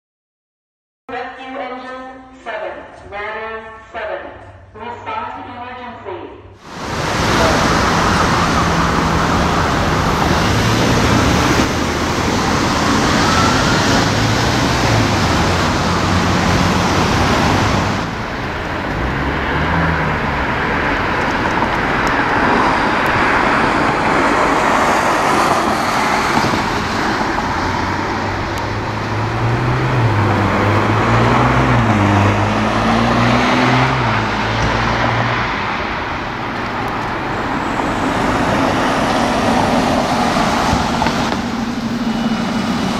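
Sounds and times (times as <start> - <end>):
road traffic noise: 6.5 - 42.9
diesel engine idling: 6.7 - 18.9.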